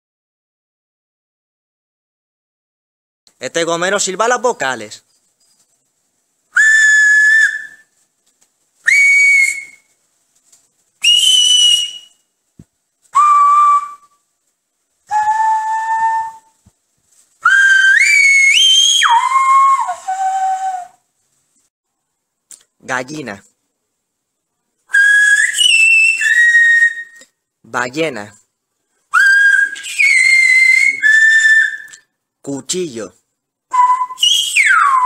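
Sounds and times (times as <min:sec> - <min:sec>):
man whistling notes: 0:06.6 - 0:07.9, 0:08.8 - 0:10.0, 0:11.0 - 0:12.3, 0:13.1 - 0:14.2, 0:15.1 - 0:16.6, 0:17.4 - 0:21.0, 0:24.9 - 0:27.3, 0:29.1 - 0:32.1, 0:33.7 - 0:35.0.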